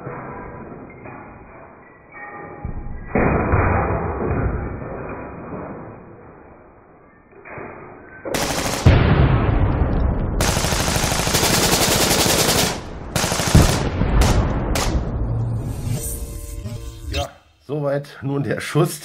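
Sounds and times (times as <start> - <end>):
rapid automatic gunfire: 8.4 - 9.2, 10.4 - 15.0
heavy boom: 8.9 - 10.5, 12.9 - 15.8.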